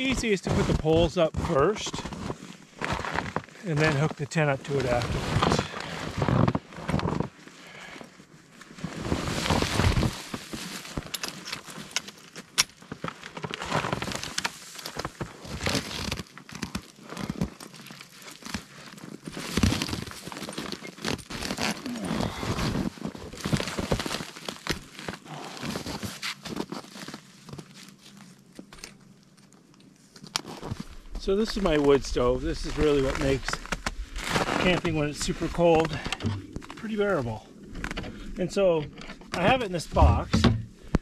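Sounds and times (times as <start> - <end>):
boots crunching in snow: 0.0 - 7.3, 32.6 - 37.4, 39.4 - 41.0
tent fabric rustling: 0.0 - 28.6, 29.2 - 38.0.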